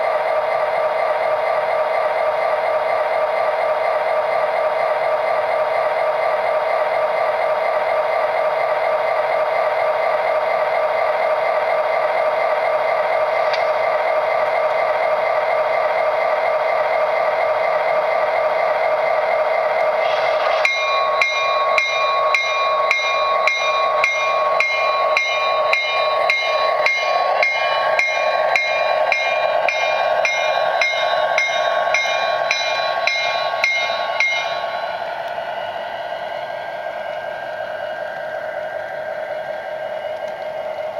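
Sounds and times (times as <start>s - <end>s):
model train running hum: 0.0s - 40.9s
crossing bell dinging: 20.5s - 35.2s.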